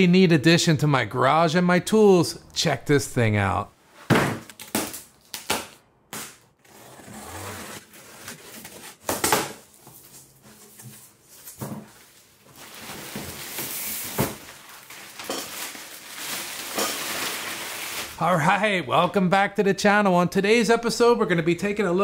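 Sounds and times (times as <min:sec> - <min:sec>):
plastic wrap crinkling: 0:12.1 - 0:18.2.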